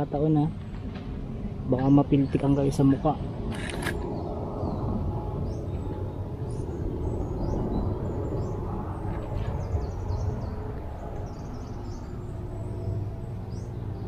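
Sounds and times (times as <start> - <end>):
low rumble: 3.2 - 14.0.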